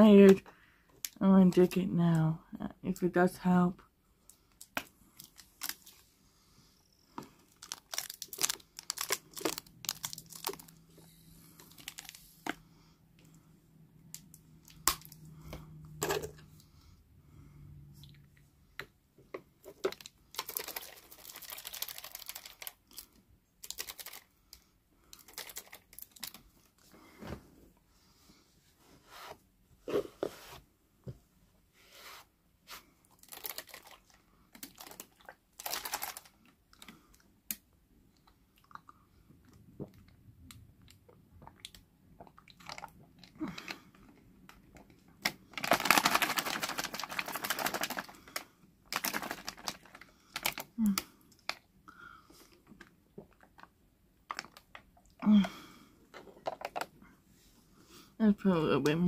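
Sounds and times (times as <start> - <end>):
small objects clicking and rustling: 7.5 - 11.0, 19.6 - 24.3, 25.1 - 26.4, 33.2 - 36.9, 43.6 - 51.6.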